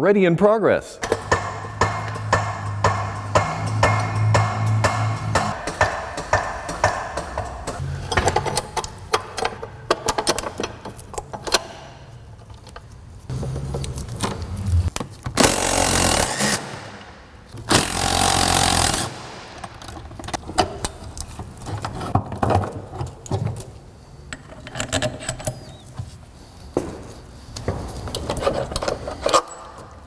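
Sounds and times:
pneumatic impact wrench bursts: 15.4 - 17.0, 17.7 - 19.6
metal tools clinking: 24.3 - 26.0, 28.0 - 30.0.

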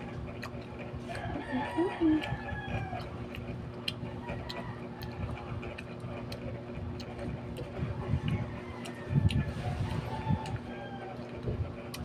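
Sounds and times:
rooster crowing: 1.0 - 3.2, 4.2 - 5.3, 7.9 - 11.4.

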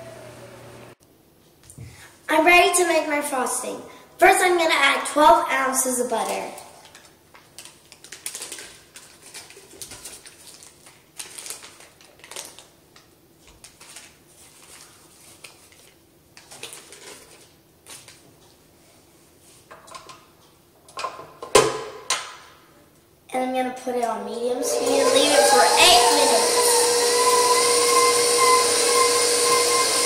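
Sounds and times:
paper wrappers crinkling: 6.2 - 18.4.

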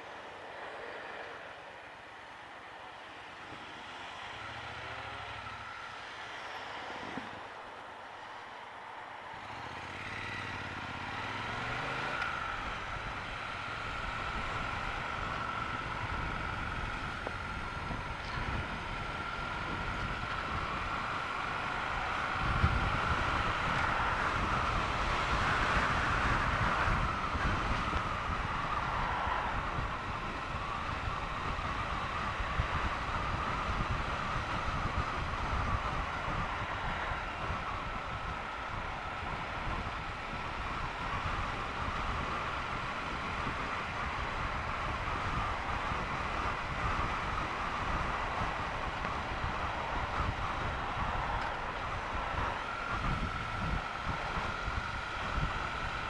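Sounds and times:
road noise: 0.0 - 56.0
motorcycle engine accelerating: 9.4 - 56.0.

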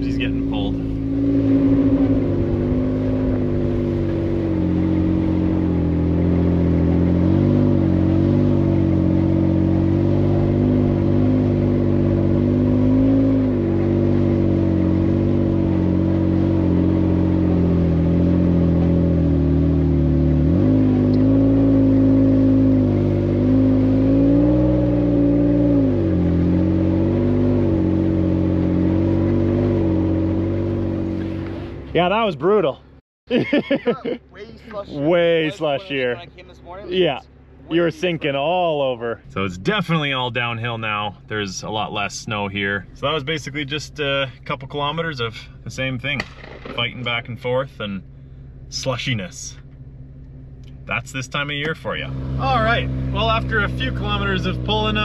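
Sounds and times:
truck engine revving under load: 0.0 - 32.6, 49.6 - 55.0.

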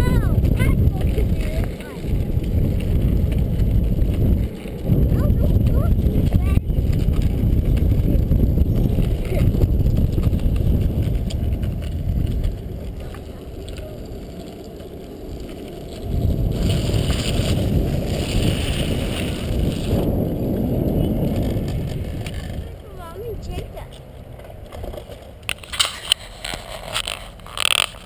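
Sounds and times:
wind buffeting microphone: 0.0 - 27.8
kick scooter rolling over asphalt: 0.0 - 28.0.

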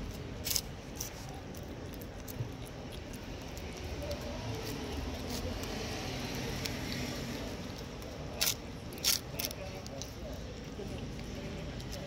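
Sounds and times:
cat chewing and licking: 0.0 - 12.0
steady background noise: 0.0 - 12.0.

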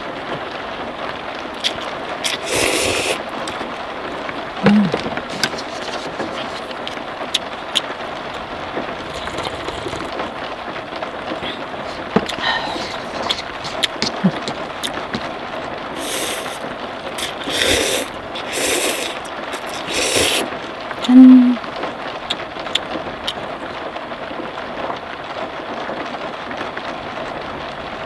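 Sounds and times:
rain on car roof: 0.0 - 28.0
sharp raindrop ticks: 0.0 - 28.0
person slurping noodles: 1.6 - 3.6, 9.0 - 10.2, 11.6 - 14.4, 16.0 - 21.6.

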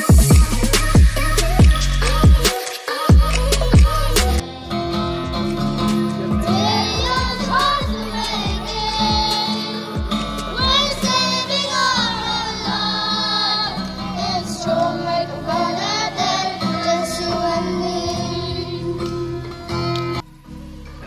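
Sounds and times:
girl singing through loudspeaker: 0.0 - 4.4, 5.9 - 19.2
group singing together: 5.4 - 19.8.

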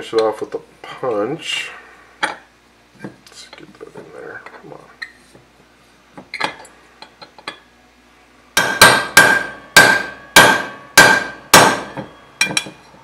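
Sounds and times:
hammer striking metal punch: 8.6 - 12.8.

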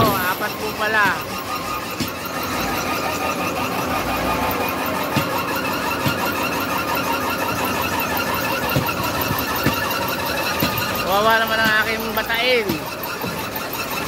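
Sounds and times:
conveyor belt running: 0.0 - 14.0
wheel loader diesel engine: 0.0 - 14.0
sharp knocks: 1.0 - 2.5, 5.0 - 6.5, 7.5 - 14.0.

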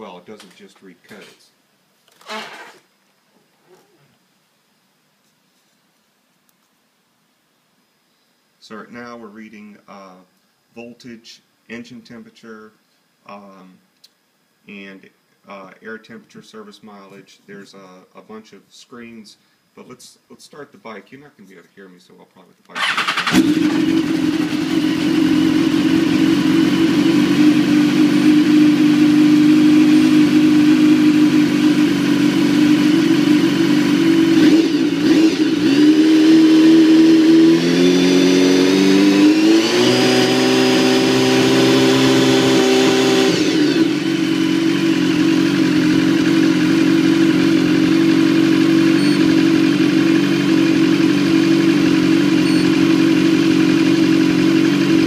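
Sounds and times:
motorcycle engine idling and revving: 22.8 - 55.0.

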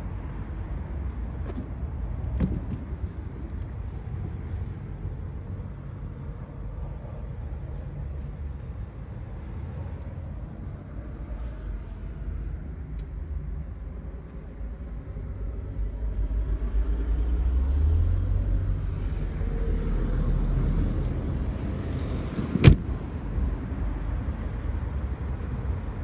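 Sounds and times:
low outdoor rumble: 0.0 - 26.0
sharp knock: 22.6 - 22.8.

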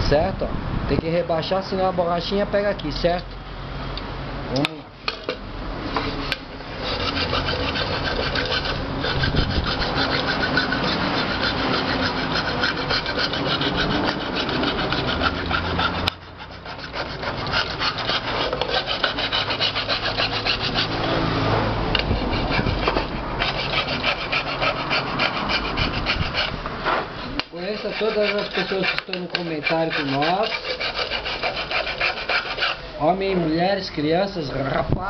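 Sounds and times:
hand file rasping on metal: 6.1 - 21.3, 22.0 - 26.6, 27.5 - 32.9.

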